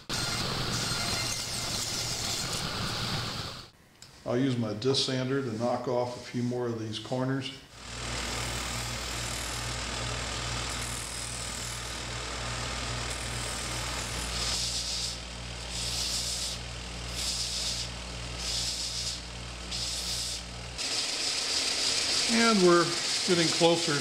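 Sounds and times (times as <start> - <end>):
sander motor hum: 7.8 - 24.0
wood rasping on sanding belt: 13.1 - 24.0.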